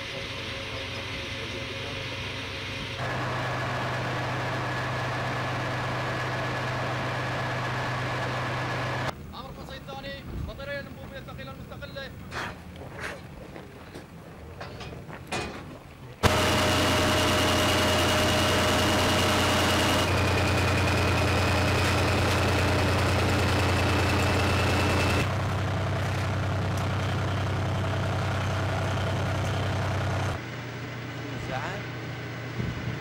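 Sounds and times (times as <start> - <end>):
heavy diesel engine idling: 0.0 - 9.1, 16.2 - 32.5
steady high whine: 16.2 - 33.0.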